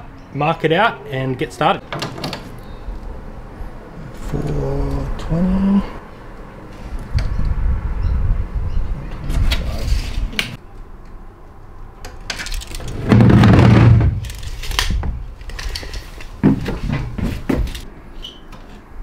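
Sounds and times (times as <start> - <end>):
box scraping: 12.8 - 14.7
footsteps on metal floor: 16.3 - 17.8.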